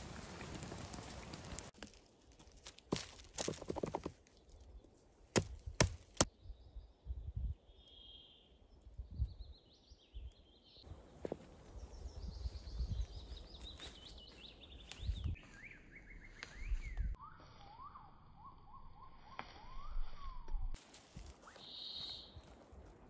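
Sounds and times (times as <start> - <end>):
small birds singing: 6.3 - 19.1, 21.5 - 22.4.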